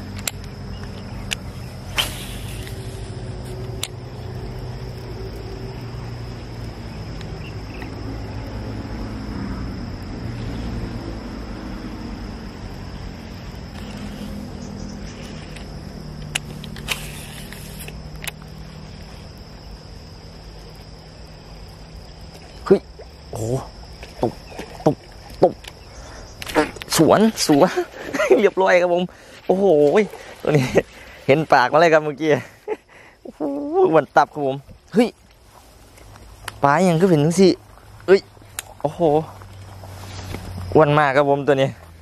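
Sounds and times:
high-pitched insect drone: 0:00.0 - 0:35.7
sharp clicks: 0:15.0 - 0:18.5.

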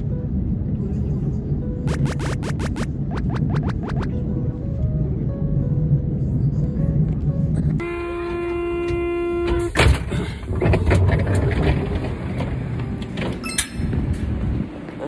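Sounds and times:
train carriage rumble: 0:00.0 - 0:15.0
steady electronic tone: 0:01.8 - 0:04.4.

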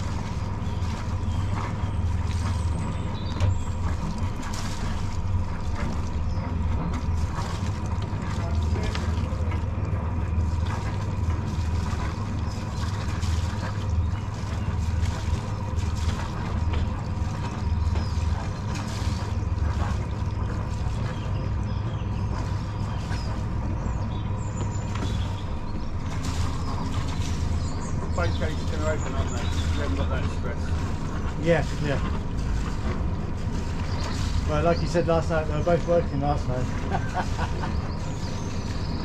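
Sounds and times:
boat engine running: 0:00.0 - 0:39.0.

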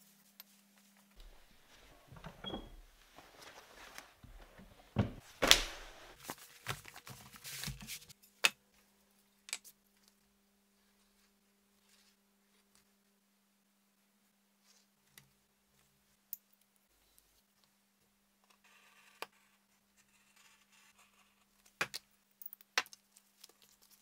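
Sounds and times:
leather hides rustling: 0:01.2 - 0:07.1.

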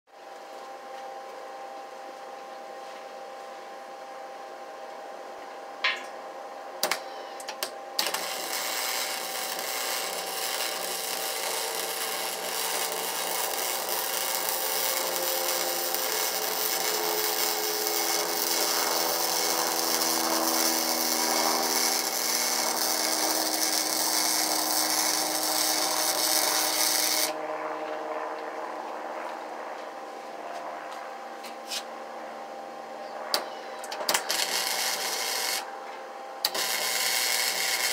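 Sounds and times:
low steady hum: 0:00.2 - 0:37.9
electric welding arc crackling: 0:06.8 - 0:27.4, 0:34.1 - 0:35.7, 0:36.4 - 0:37.9.

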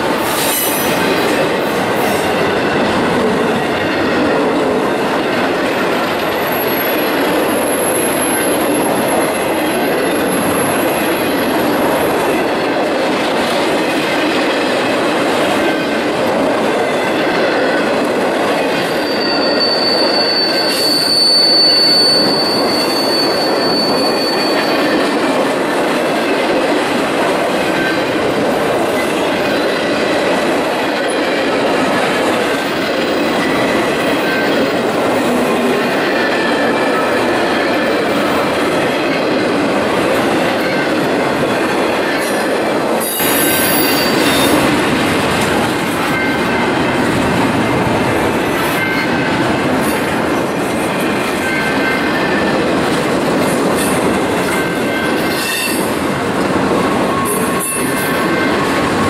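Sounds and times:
steel wheels rumbling on rail: 0:00.0 - 0:59.0
high wheel squeals: 0:18.9 - 0:25.2, 0:43.0 - 0:44.7.

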